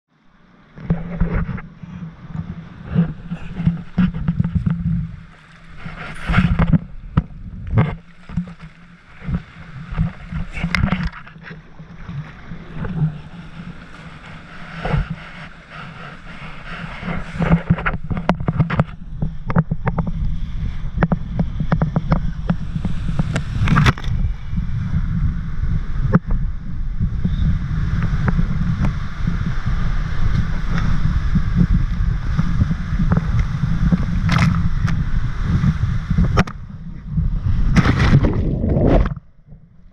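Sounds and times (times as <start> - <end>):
wind on microphone: 0.4 - 39.9
rushing water: 2.3 - 18.9, 37.5 - 39.3
water splashing: 2.3 - 18.9, 37.5 - 39.4.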